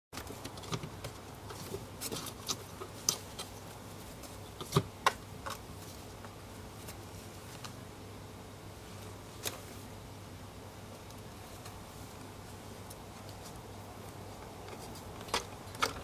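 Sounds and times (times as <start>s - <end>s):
cat claws scratching wicker: 0.2s - 7.8s, 11.6s - 16.0s.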